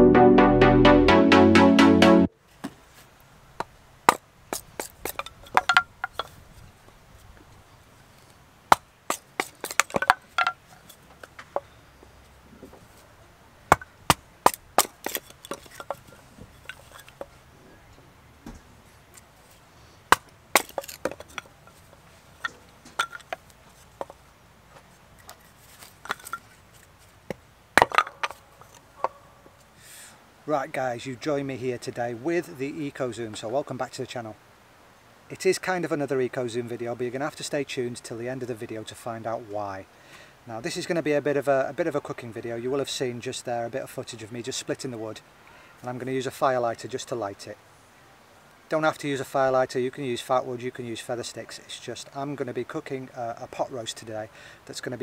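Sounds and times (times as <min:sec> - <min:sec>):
knife splitting wood: 0:03.6 - 0:06.4, 0:08.7 - 0:11.6, 0:13.7 - 0:17.3, 0:20.1 - 0:24.2, 0:25.2 - 0:29.2.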